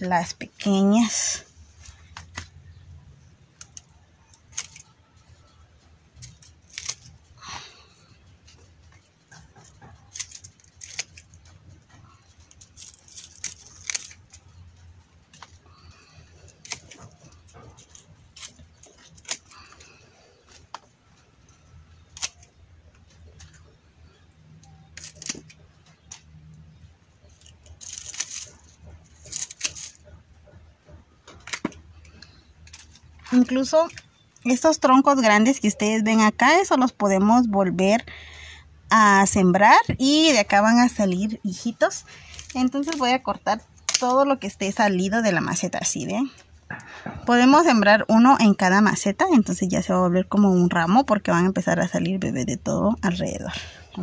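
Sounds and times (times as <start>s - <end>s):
pruning shears snipping: 6.2s - 7.2s, 9.3s - 11.5s, 16.4s - 19.8s, 21.9s - 22.6s, 24.6s - 26.6s, 27.3s - 30.2s, 42.0s - 44.3s
leaves rustling: 6.2s - 8.6s, 9.6s - 11.4s, 12.1s - 14.6s, 15.2s - 20.9s, 24.8s - 30.0s, 40.1s - 43.2s.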